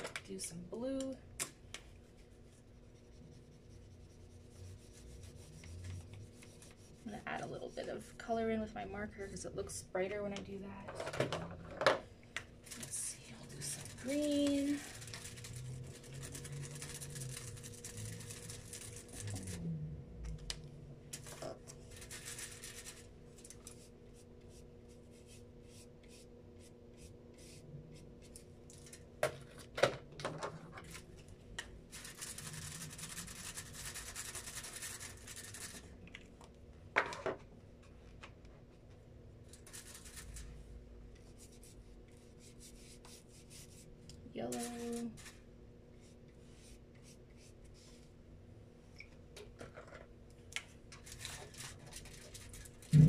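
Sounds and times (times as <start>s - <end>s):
faint steady hum: 0.0s - 53.0s
marker scratching on paper: 2.1s - 8.0s.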